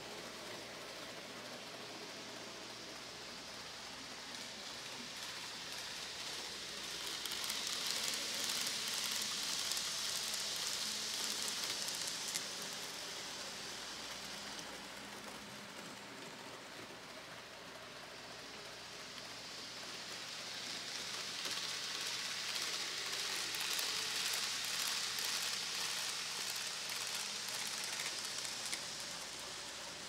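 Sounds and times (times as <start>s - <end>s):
model train wheels and motor hiss: 0.0s - 30.0s.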